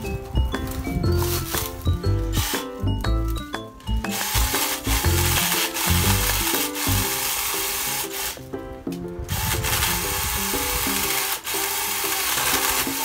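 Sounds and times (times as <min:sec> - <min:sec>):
background music: 0:00.0 - 0:13.0
mini chainsaw cutting branch: 0:01.2 - 0:02.8, 0:04.1 - 0:08.4, 0:09.3 - 0:13.0.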